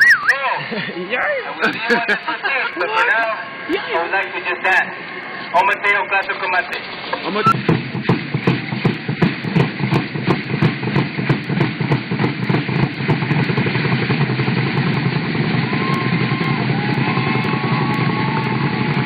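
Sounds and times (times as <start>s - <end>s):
drum beat: 7.5s - 19.0s.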